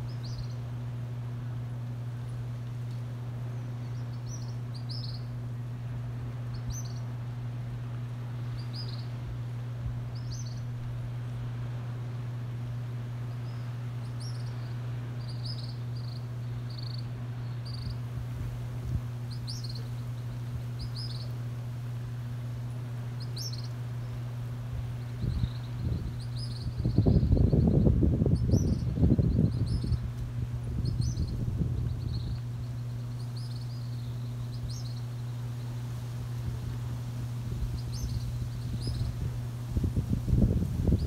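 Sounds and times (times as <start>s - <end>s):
steady low hum: 0.0s - 41.0s
young bird chirping: 19.3s - 20.0s, 20.8s - 21.3s, 23.2s - 23.8s, 25.2s - 30.1s, 30.8s - 35.1s, 37.8s - 39.1s.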